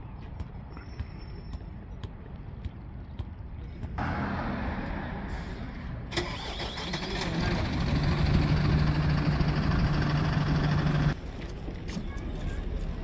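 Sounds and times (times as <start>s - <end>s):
vehicle engine running: 7.3s - 11.2s.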